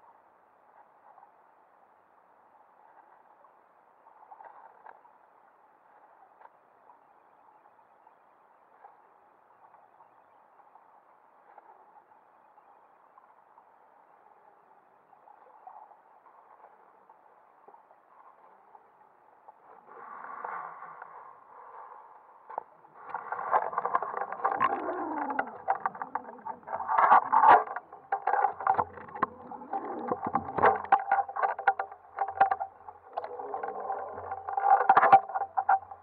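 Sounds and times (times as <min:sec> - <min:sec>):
muffled underwater water noise: 0:00.0 - 0:36.0
water rush: 0:22.8 - 0:35.8.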